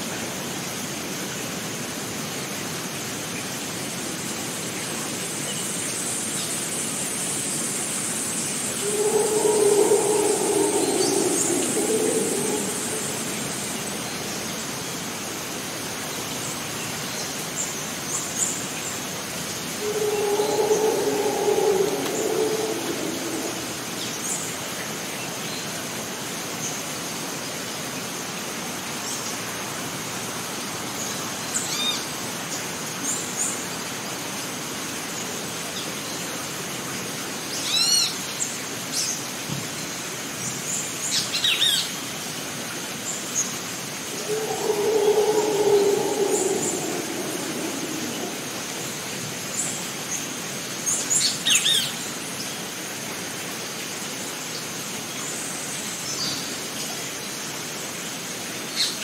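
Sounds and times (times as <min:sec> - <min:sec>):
steady rushing hiss: 0:08.4 - 0:15.5, 0:19.6 - 0:24.6, 0:44.0 - 0:49.6
low drawn-out animal call: 0:08.6 - 0:14.9, 0:19.7 - 0:24.4, 0:44.0 - 0:49.4
birds chirping: 0:08.8 - 0:14.5, 0:19.8 - 0:24.2, 0:44.1 - 0:49.0.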